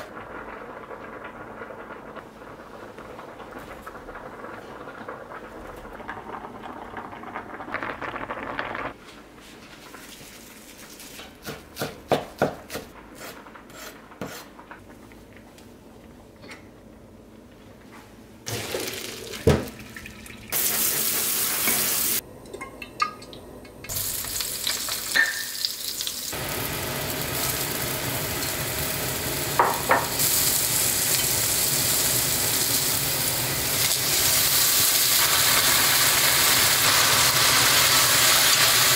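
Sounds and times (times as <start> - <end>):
vegetables sizzling in a wok: 18.5 - 19.8, 20.5 - 22.2, 23.9 - 38.9.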